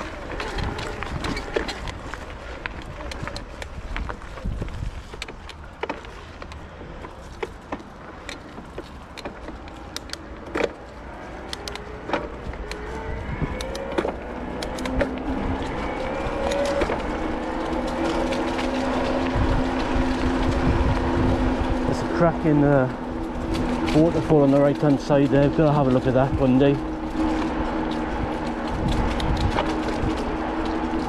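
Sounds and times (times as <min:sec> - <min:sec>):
wind rumble on microphone: 0:00.0 - 0:05.8, 0:10.4 - 0:31.0
bike clicks and knocks: 0:00.0 - 0:31.0
hum rising in pitch: 0:11.3 - 0:23.9.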